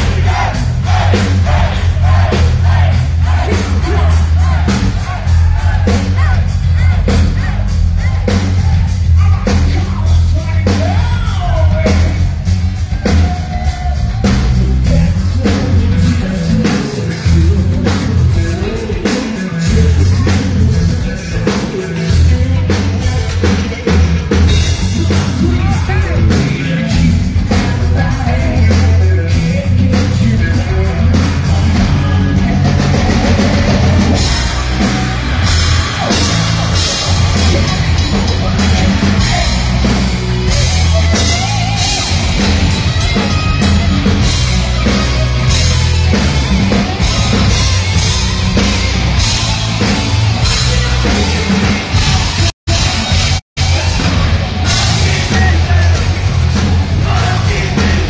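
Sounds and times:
man singing: 0.0s - 12.4s, 13.0s - 45.8s, 50.4s - 58.0s
hard rock band playing: 0.0s - 58.0s
heavy drum beat: 0.0s - 58.0s.

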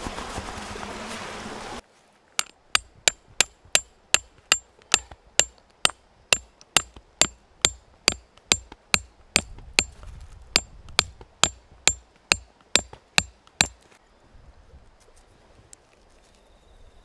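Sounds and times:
hammer striking metal tent peg: 2.4s - 9.9s, 10.6s - 13.8s.

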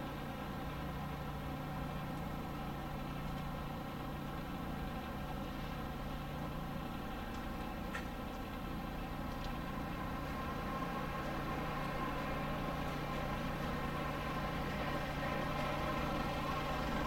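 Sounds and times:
engine hum: 0.0s - 17.0s
faint tick: 7.3s - 8.5s, 9.3s - 9.6s.

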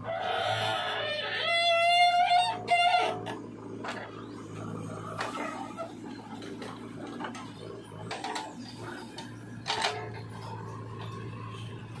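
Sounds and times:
diesel engine running under load: 0.0s - 12.0s
metallic clanks of digger bucket: 2.6s - 11.3s.

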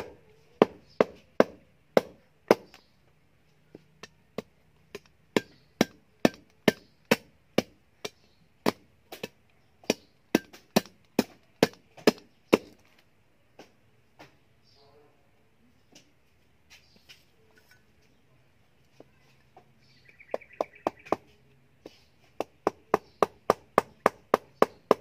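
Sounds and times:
cleaver chopping on wooden block: 0.0s - 2.8s, 4.0s - 12.8s, 20.3s - 25.0s.

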